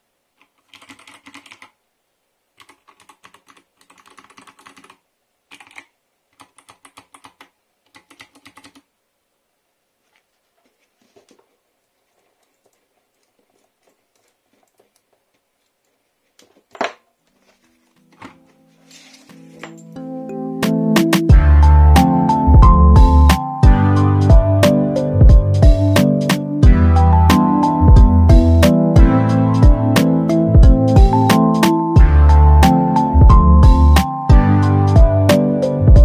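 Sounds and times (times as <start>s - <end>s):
clicky keyboard typing: 0.4s - 1.8s, 2.6s - 8.9s
music: 18.0s - 36.0s.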